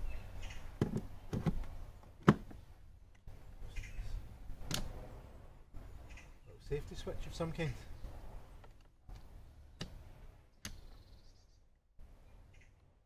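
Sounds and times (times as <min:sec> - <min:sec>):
plastic clicks and knocks: 0:00.8 - 0:02.6.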